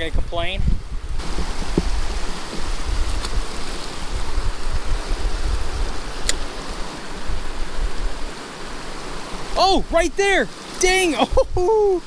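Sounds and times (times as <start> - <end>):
wind buffeting microphone: 0.0 - 12.0
creek water rushing: 0.7 - 12.0
sharp clicks: 6.2 - 6.5.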